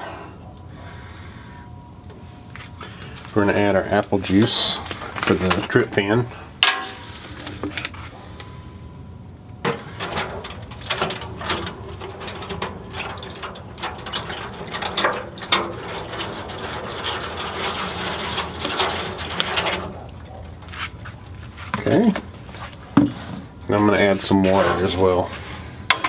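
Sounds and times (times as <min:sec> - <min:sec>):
juice pouring and splashing: 0:09.7 - 0:21.7.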